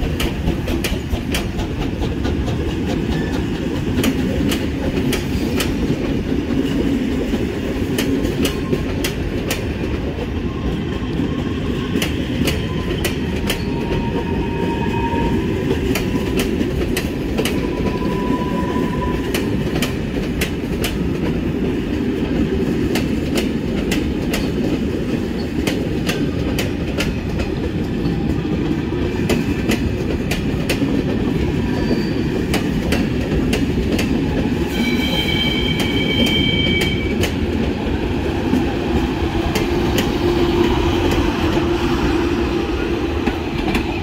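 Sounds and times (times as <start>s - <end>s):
train wheels clicking over rail joints: 0.0s - 14.5s, 15.3s - 18.4s, 19.2s - 44.0s
rolling rumble of train: 0.0s - 44.0s
high wheel squeal: 31.7s - 32.4s, 34.7s - 37.2s.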